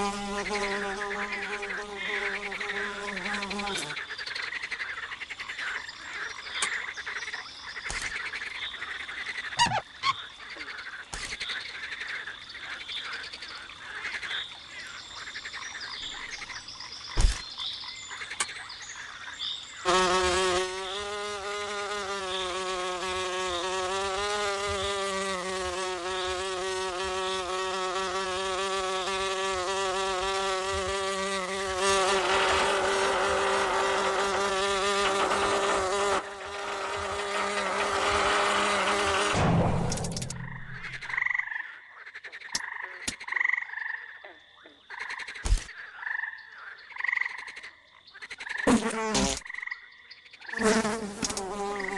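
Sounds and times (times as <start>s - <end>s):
fly buzzing: 0.0s - 4.1s, 19.8s - 41.4s, 48.6s - 49.6s, 50.5s - 51.9s
sharp clicks: 39.8s - 41.0s.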